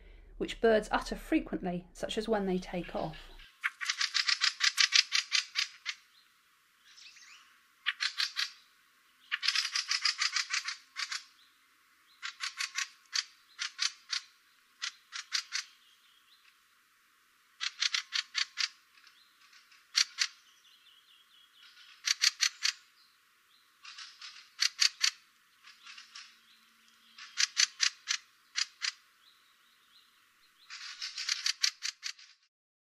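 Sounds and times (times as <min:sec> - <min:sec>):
birds harsh chack calls: 0:02.8 - 0:06.1, 0:07.8 - 0:08.6, 0:09.2 - 0:11.4, 0:12.1 - 0:15.8, 0:17.6 - 0:20.5, 0:21.6 - 0:22.9, 0:23.8 - 0:26.5, 0:27.1 - 0:29.1, 0:30.6 - 0:32.4.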